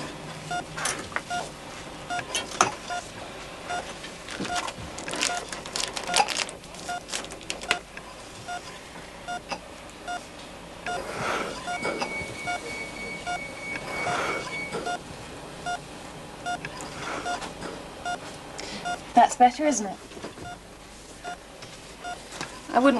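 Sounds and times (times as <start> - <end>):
patient monitor beeps: 0.5 - 0.7, 1.3 - 1.5, 2.1 - 3.1, 3.7 - 4.7, 5.3 - 6.3, 6.9 - 7.1, 8.5 - 8.7, 9.3 - 9.5, 10.1 - 15.0, 15.6 - 15.8, 16.4 - 19.1, 21.2 - 21.4, 22.0 - 22.3.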